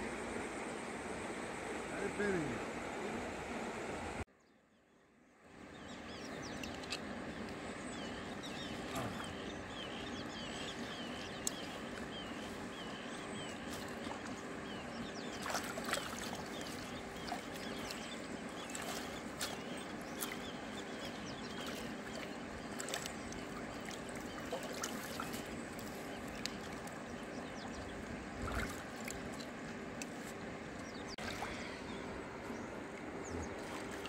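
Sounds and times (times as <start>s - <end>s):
running water rushing: 6.1s - 34.0s
faint clicks: 11.4s - 11.6s, 26.3s - 27.0s.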